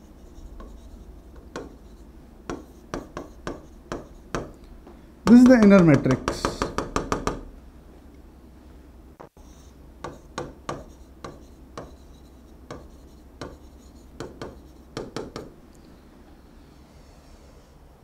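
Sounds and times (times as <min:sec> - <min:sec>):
stylus tapping and scraping glass: 0:00.5 - 0:01.9, 0:02.5 - 0:04.6, 0:10.0 - 0:15.5.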